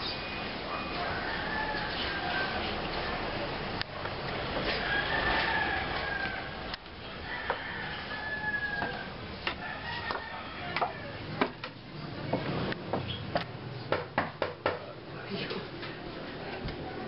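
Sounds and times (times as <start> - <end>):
rooster crowing: 0.7 - 2.7, 4.7 - 11.2.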